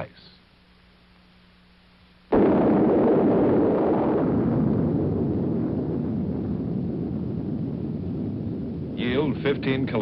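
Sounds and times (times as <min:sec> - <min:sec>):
loud explosion blast with rumble: 0:02.3 - 0:10.0.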